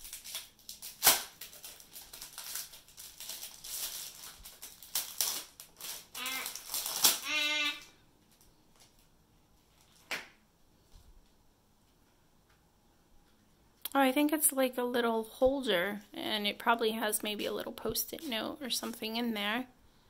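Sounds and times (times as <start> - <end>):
plastic packaging crinkling: 0.0 - 10.1
short high-pitched vocal sounds: 6.2 - 6.6, 7.2 - 7.9.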